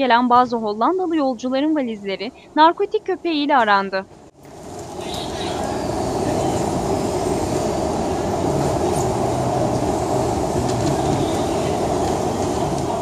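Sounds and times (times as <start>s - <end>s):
baggage carousel running: 4.4s - 13.0s.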